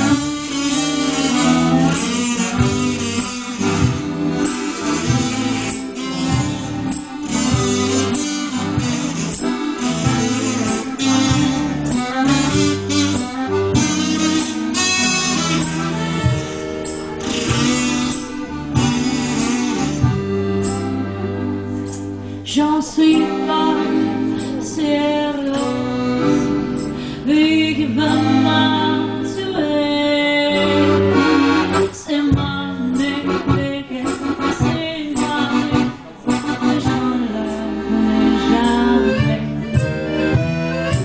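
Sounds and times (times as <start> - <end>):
accordion playing: 0.0 - 41.0
woman singing into a microphone: 22.4 - 40.0.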